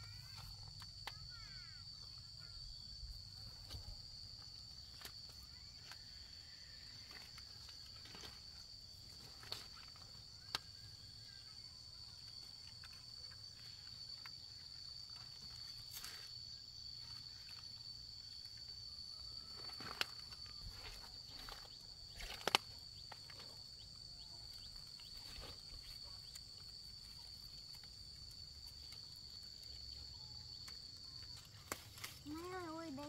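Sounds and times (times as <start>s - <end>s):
insect chirring: 0.0s - 33.0s
plants rustling and clicking: 6.8s - 10.9s, 19.4s - 33.0s.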